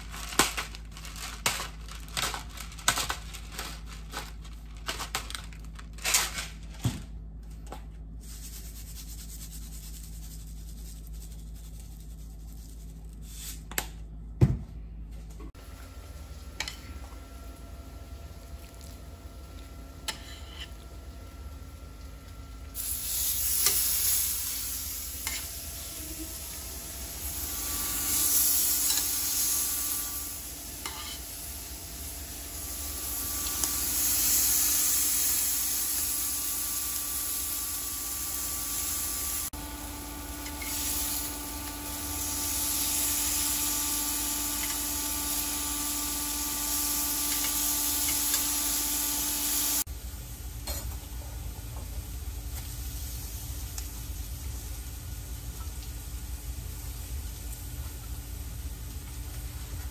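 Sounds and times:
meat sizzling on a grill: 0:22.8 - 0:49.9, 0:52.5 - 0:55.4.

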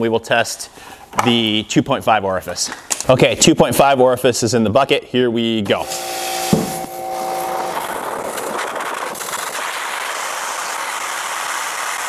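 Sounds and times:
short steady hum: 0:05.7 - 0:11.2.

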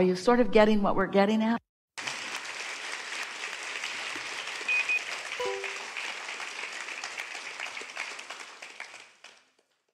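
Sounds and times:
audience applause: 0:02.0 - 0:09.7
short high beeps: 0:04.7 - 0:05.8.

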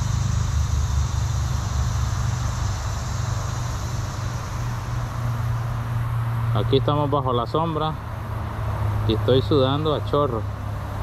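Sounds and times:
constant hiss: 0:00.0 - 0:11.0
low mechanical hum: 0:00.0 - 0:11.0.

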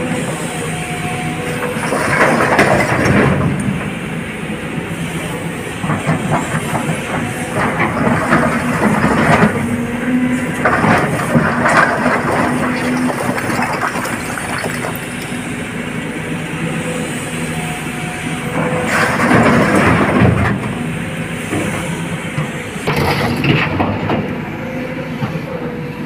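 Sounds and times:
heavy diesel engine running: 0:00.0 - 0:26.0
clattering and rattling of rock: 0:01.6 - 0:03.4, 0:10.6 - 0:15.4.

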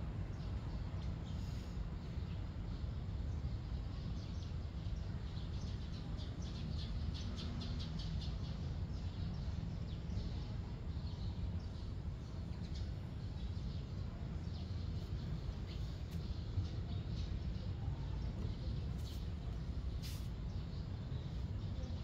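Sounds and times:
small birds chirping: 0:00.2 - 0:22.0
steady low rumble: 0:08.1 - 0:22.0.

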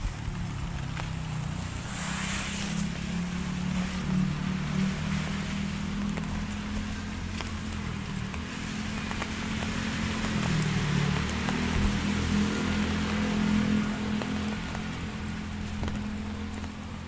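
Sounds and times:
vehicle engine humming: 0:00.0 - 0:17.0
drizzle hissing: 0:01.6 - 0:03.3.

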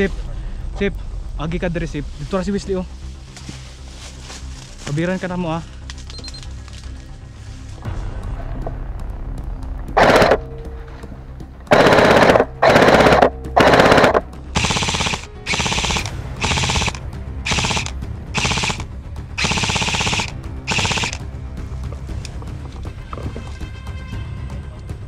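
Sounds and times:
airsoft rifle bursts: 0:10.0 - 0:10.5, 0:11.7 - 0:21.2.

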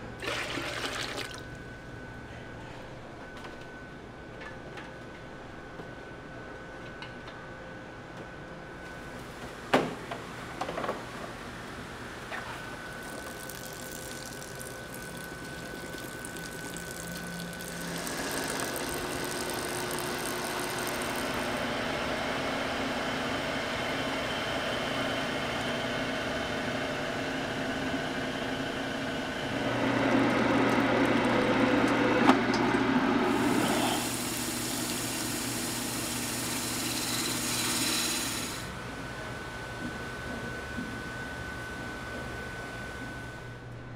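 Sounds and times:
wet grinder running: 0:13.0 - 0:24.3, 0:29.0 - 0:38.7.

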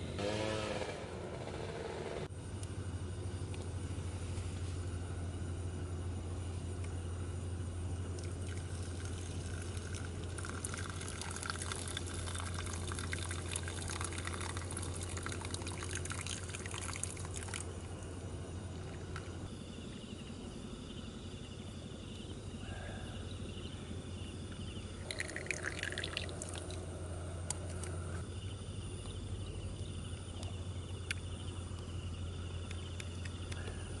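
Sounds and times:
steady low hum: 0:00.0 - 0:34.0
water trickling into filter: 0:08.2 - 0:17.8, 0:25.0 - 0:26.9.

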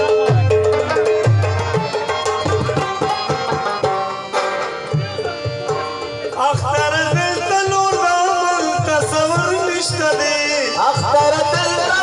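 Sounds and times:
man singing: 0:04.9 - 0:12.0.

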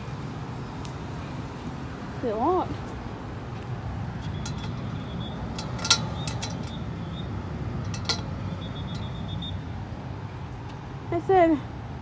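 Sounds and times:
door latch clicks and clunks: 0:05.6 - 0:06.8.

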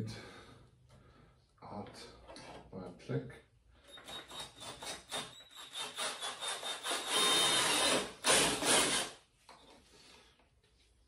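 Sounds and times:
cordless drill boring: 0:03.9 - 0:09.2.

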